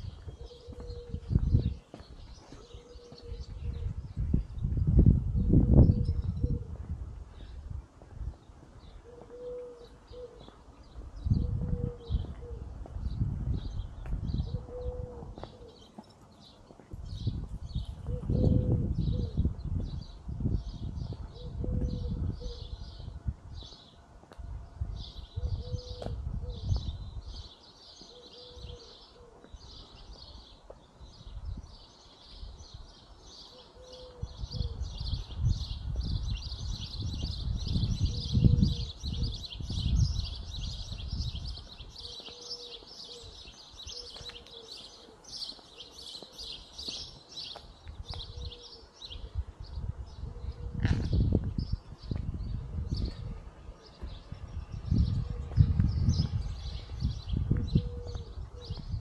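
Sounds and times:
birds chirping: 0.0s - 4.7s, 25.0s - 59.0s
low rumbling on microphone: 0.0s - 9.1s, 10.8s - 15.5s, 17.0s - 23.7s, 24.4s - 27.5s, 34.2s - 42.2s, 48.0s - 59.0s.

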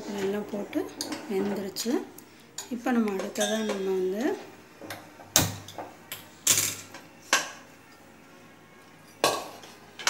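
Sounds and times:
steel ladle clinking on pot: 2.6s - 4.0s.

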